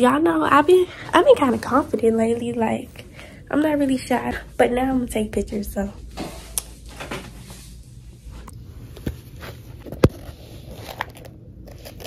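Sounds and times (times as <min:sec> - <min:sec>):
rustling of small items: 0:09.0 - 0:12.0.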